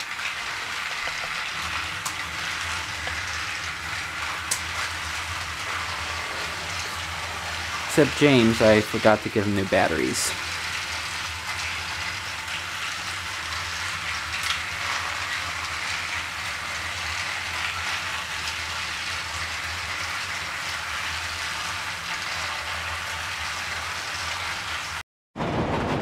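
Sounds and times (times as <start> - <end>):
toy train motors whirring: 0.0 - 25.0.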